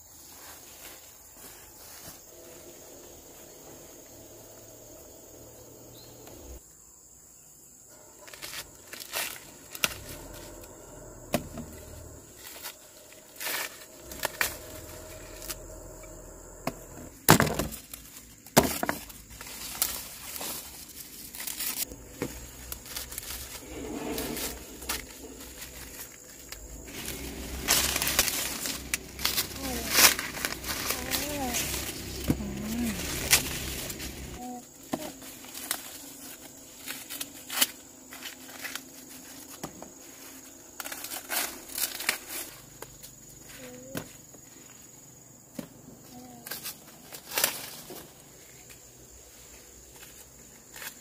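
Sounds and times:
dry leaves rustling: 7.9 - 44.8, 46.2 - 51.0
corn ears snapping off stalks: 40.8 - 43.0.

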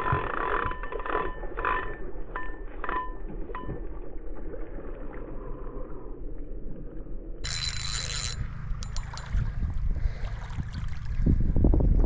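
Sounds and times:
fishing reel drag whining: 0.0 - 3.3, 7.4 - 9.6.

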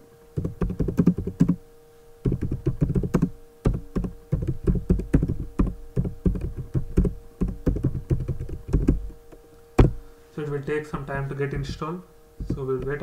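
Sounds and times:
typing on computer keyboard: 0.4 - 1.6, 2.2 - 9.1.

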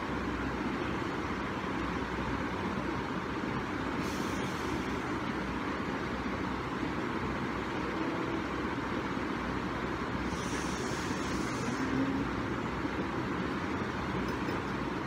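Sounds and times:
background rumble and hiss: 0.0 - 15.0
brief higher hiss: 4.0 - 4.8, 10.2 - 12.2.

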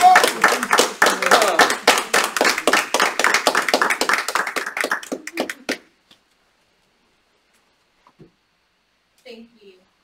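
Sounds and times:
small group applauding: 0.0 - 6.1.

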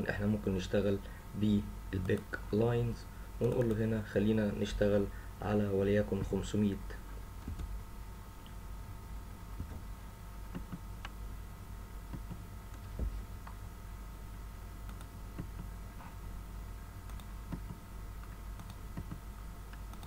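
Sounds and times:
low electrical hum: 0.0 - 20.0
computer mouse clicks: 3.4 - 3.8, 14.8 - 15.7, 17.0 - 20.0.

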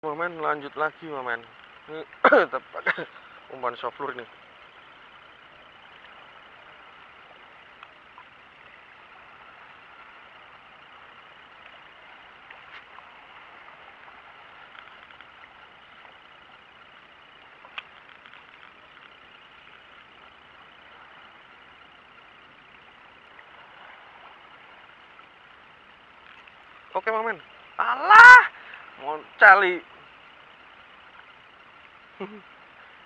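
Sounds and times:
clicks: 17.6 - 19.2.

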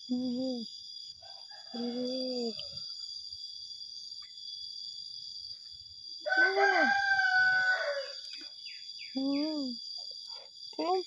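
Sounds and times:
rooster crowing: 6.3 - 8.3.

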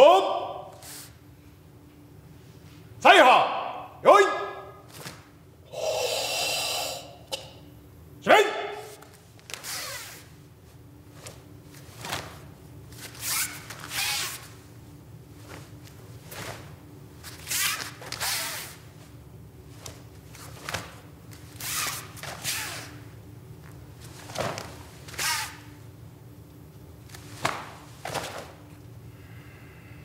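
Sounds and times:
low steady hum: 0.0 - 30.0
sharp hissing exhalations: 5.7 - 7.4
swish and snap of clothing: 11.2 - 14.6, 15.4 - 18.8, 23.6 - 25.6, 27.1 - 28.6.

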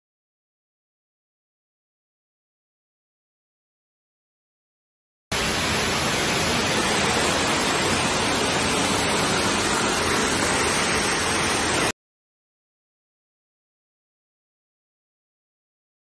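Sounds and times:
blower rushing air: 5.3 - 11.9.

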